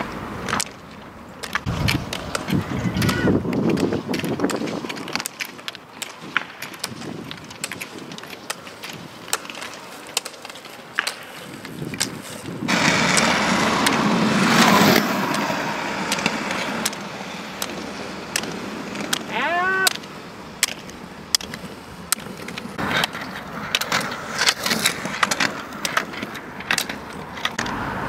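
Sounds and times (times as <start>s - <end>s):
pole tips clicking on asphalt: 0.0s - 27.8s
ski wheels rolling on asphalt: 0.0s - 28.0s.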